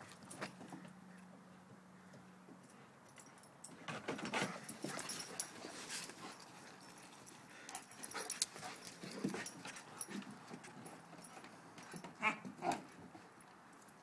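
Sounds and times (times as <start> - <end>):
dog noises: 4.2 - 13.3.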